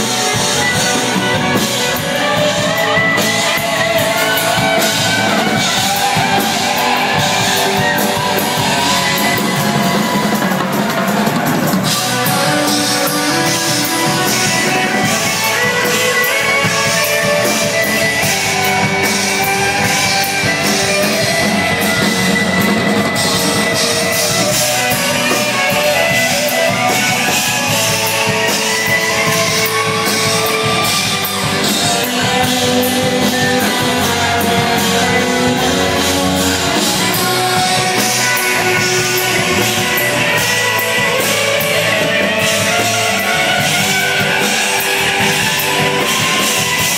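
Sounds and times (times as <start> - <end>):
rock band playing live: 0.0 - 46.9
sustained guitar notes: 0.0 - 46.9.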